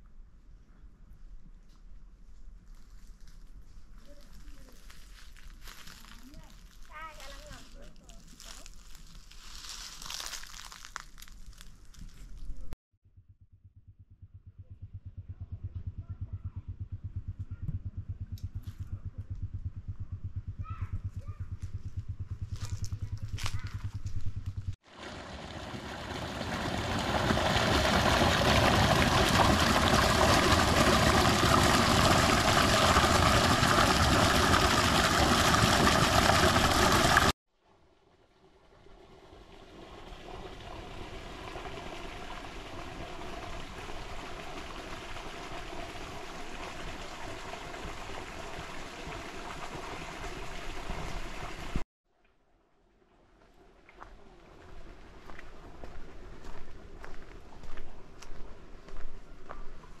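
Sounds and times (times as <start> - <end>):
machine running steadily: 13.8 - 24.8.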